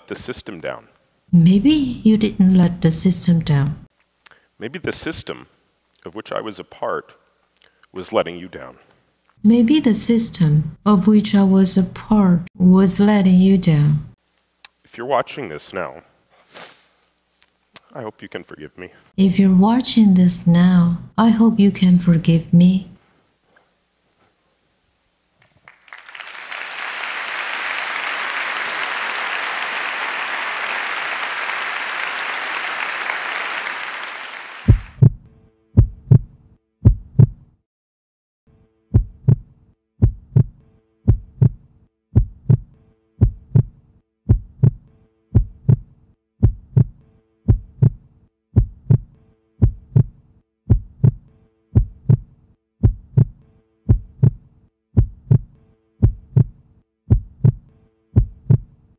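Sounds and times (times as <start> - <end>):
audience applauding: 25.4 - 35.0
heartbeat-like thumping beat: 34.7 - 35.2, 35.8 - 37.5, 38.9 - 58.8.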